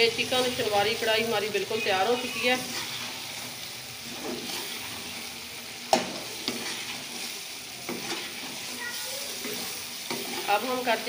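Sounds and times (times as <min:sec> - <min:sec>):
food sizzling in oil: 0:00.0 - 0:11.0
metal spoon stirring: 0:02.1 - 0:11.0
spoon clanking against pan: 0:05.9 - 0:08.8, 0:09.4 - 0:10.7.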